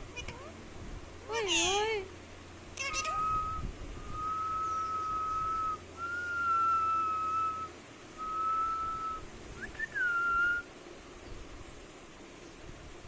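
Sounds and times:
parakeet chirp: 2.8 - 3.4
parakeet whistling: 2.8 - 10.6.

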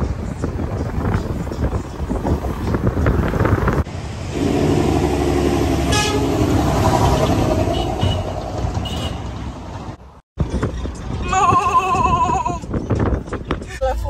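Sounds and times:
vehicle engine rumble: 0.0 - 14.0
car horn: 4.4 - 9.4.

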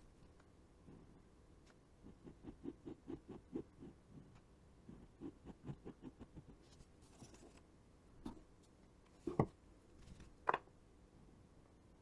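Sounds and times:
pen scratching on paper: 2.0 - 4.0, 4.9 - 6.8.

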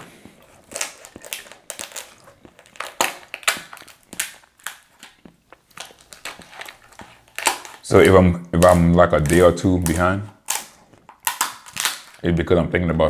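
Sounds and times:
shears snipping lobster shell: 7.4 - 12.2.

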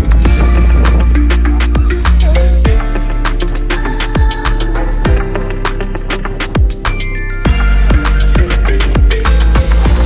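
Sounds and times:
deep kick drums: 0.0 - 3.0
electronic music: 0.0 - 10.0
heavy bass: 0.0 - 10.0.

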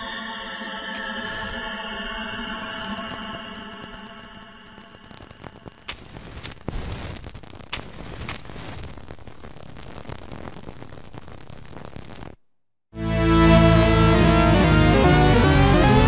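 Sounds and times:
loud electronic pitched tone: 0.0 - 5.9
crackling hiss: 2.9 - 12.4.

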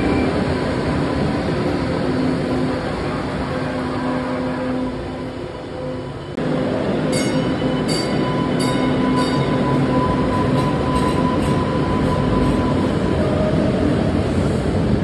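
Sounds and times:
light-rail car running past: 0.0 - 15.0
high wheel squeals: 7.2 - 13.6.

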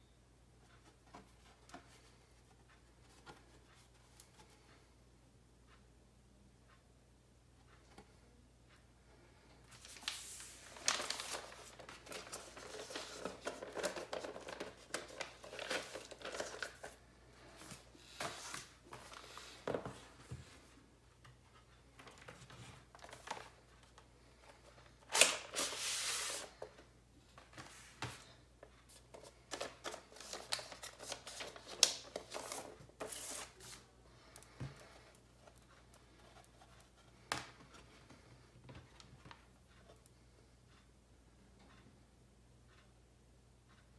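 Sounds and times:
paper sleeves rustling: 9.7 - 20.8, 25.1 - 26.7, 28.9 - 34.0.

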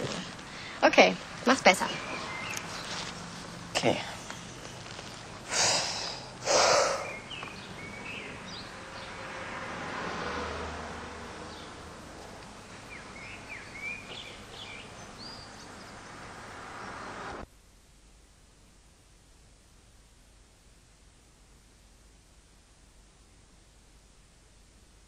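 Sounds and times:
steady background hiss: 0.0 - 25.0
person taking sharp breaths: 0.3 - 0.8, 5.4 - 7.2.

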